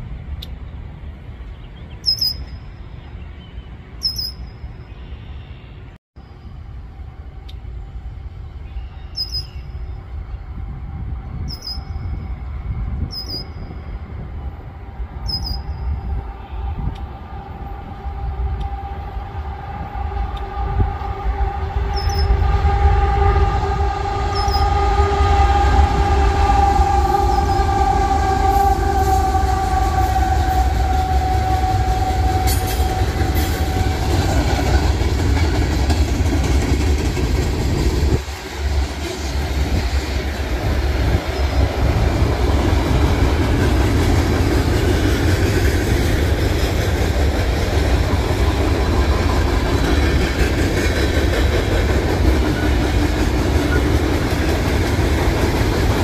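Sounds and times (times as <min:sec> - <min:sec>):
train low rumble: 0:00.0 - 0:56.0
bird chirping: 0:00.3 - 0:05.9, 0:08.6 - 0:10.0, 0:15.2 - 0:16.7
freight cars rolling past: 0:17.1 - 0:56.0.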